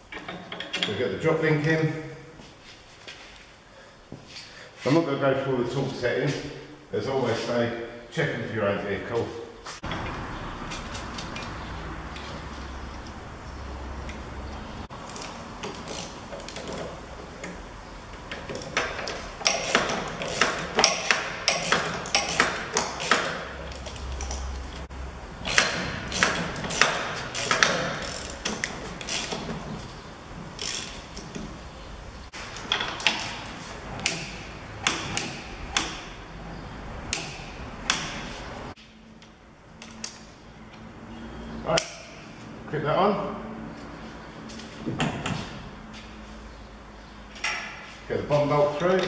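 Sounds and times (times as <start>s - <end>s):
ratchet clicking: 18.3s - 24.5s, 25.4s - 29.5s, 30.5s - 31.3s.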